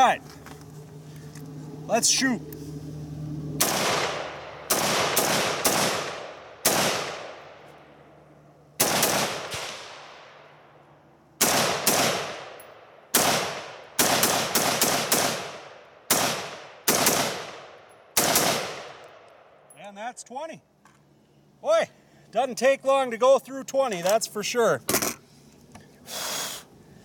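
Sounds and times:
rifle shots with echo: 0:03.6 - 0:07.7, 0:08.8 - 0:10.5, 0:11.4 - 0:19.3.

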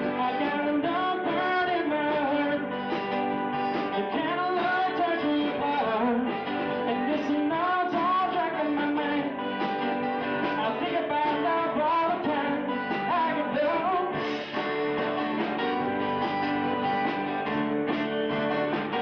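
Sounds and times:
man singing lead: 0:00.0 - 0:15.0
acoustic guitars strumming: 0:00.0 - 0:19.0
keyboards: 0:00.0 - 0:19.0
live acoustic rock band: 0:00.0 - 0:19.0.

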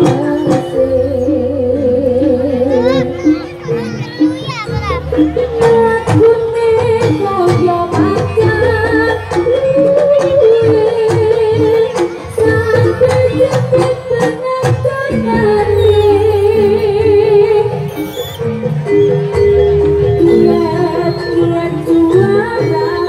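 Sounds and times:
drums and metal percussion: 0:00.0 - 0:23.0
wavering melody line: 0:11.9 - 0:23.0.

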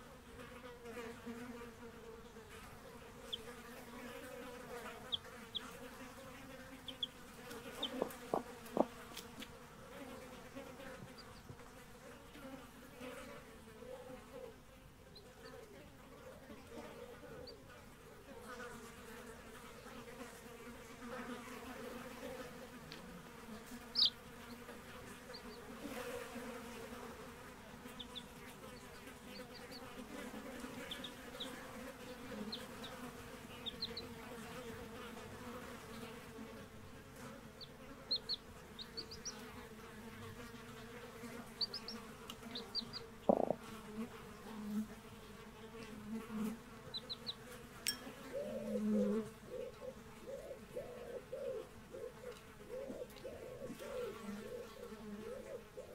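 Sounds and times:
steady buzzing hum: 0:00.0 - 0:13.5, 0:22.5 - 0:55.9
chicks peeping: 0:05.0 - 0:05.8, 0:06.8 - 0:09.5, 0:23.8 - 0:25.7, 0:27.9 - 0:30.0, 0:30.6 - 0:34.2, 0:37.6 - 0:39.5, 0:41.4 - 0:43.6, 0:46.8 - 0:47.4, 0:48.4 - 0:55.9
soft knock: 0:43.3 - 0:43.6.

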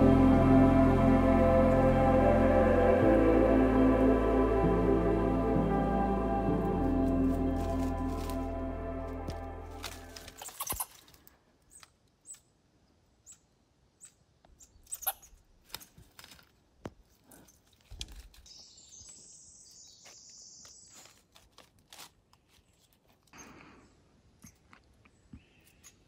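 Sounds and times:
small clicks and crackles: 0:14.0 - 0:18.6.

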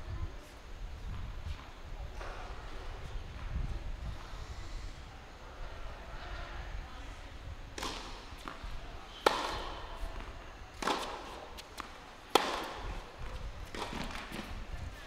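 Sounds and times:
tennis racket hitting ball: 0:07.8 - 0:08.6, 0:09.2 - 0:10.2, 0:10.8 - 0:14.5.

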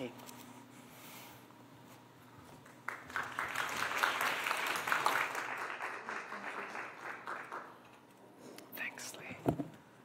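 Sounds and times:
audience applauding: 0:02.6 - 0:07.9.

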